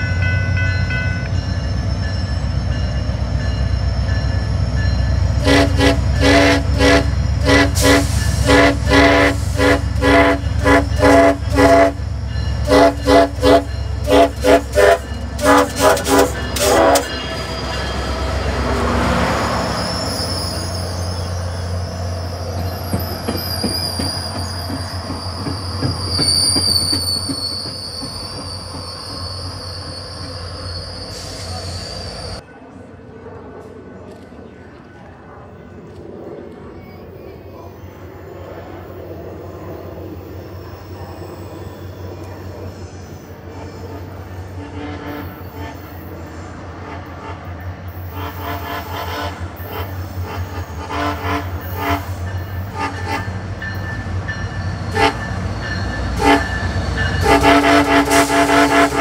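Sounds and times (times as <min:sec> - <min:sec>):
locomotive engine rumble: 0:00.4 - 0:59.0
train wheels squealing: 0:00.8 - 0:05.4, 0:07.0 - 0:08.6, 0:09.4 - 0:32.4, 0:36.8 - 0:46.6, 0:51.6 - 0:59.0
train horn short blasts: 0:05.3 - 0:17.6, 0:43.5 - 0:46.1, 0:46.8 - 0:53.4, 0:54.9 - 0:55.3, 0:56.1 - 0:59.0.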